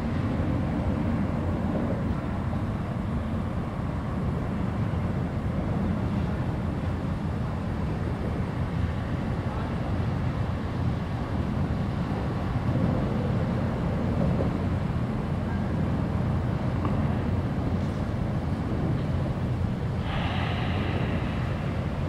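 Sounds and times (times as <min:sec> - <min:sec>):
distant engines rumbling: 0:00.0 - 0:22.0
hiss: 0:20.0 - 0:22.0.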